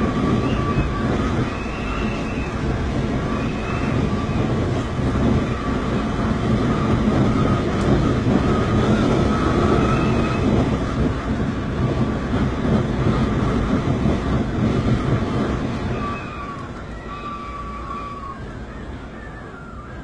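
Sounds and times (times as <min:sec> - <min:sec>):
wind whistle wavering in pitch: 0:00.0 - 0:10.9, 0:15.6 - 0:20.0
wind and rain roaring: 0:00.0 - 0:20.0.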